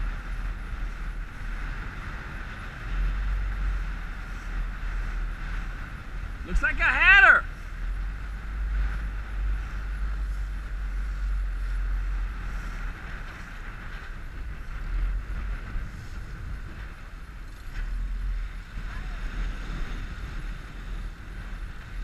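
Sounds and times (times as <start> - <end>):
motorboat through choppy water: 0.0 - 22.0
wind buffeting microphone: 0.0 - 22.0.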